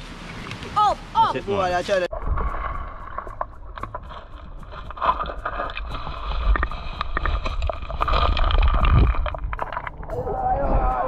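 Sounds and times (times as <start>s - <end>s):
wind buffeting microphone: 2.1s - 11.0s
small clicks and splashes: 2.2s - 10.2s.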